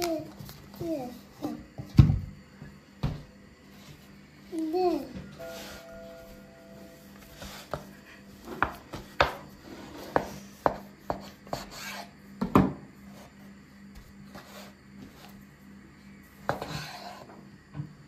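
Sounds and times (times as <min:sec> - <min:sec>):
knife chopping on wooden board: 0:08.5 - 0:09.4, 0:10.1 - 0:12.8.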